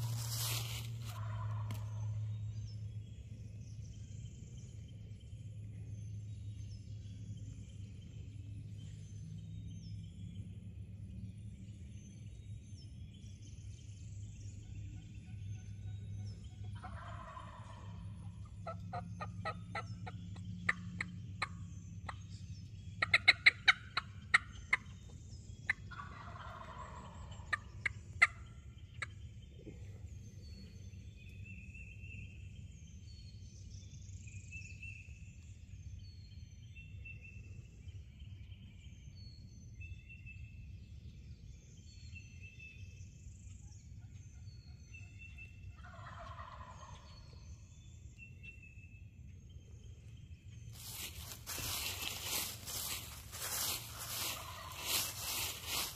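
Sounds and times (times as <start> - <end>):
songbirds chirping: 0.0 - 55.9
turkey gobbling: 1.1 - 1.8, 16.8 - 17.9, 23.0 - 24.9, 25.7 - 28.4, 45.8 - 47.2, 50.8 - 55.9
turkey call yelps: 53.5 - 55.9.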